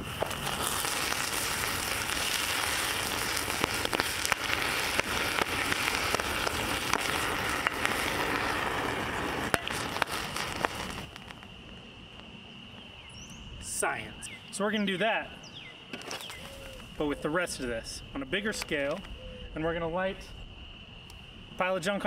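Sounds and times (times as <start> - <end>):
fire rushing: 0.0 - 12.5
fire crackling and popping: 0.0 - 13.9, 15.9 - 19.2.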